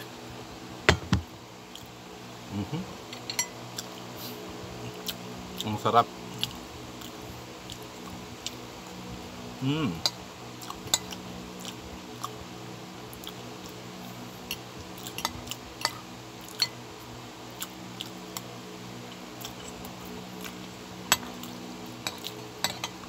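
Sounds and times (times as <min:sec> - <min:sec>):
steady low hum: 0:00.0 - 0:23.0
cutlery clinking on ceramic bowl: 0:03.1 - 0:03.6, 0:21.1 - 0:21.4, 0:22.0 - 0:23.0.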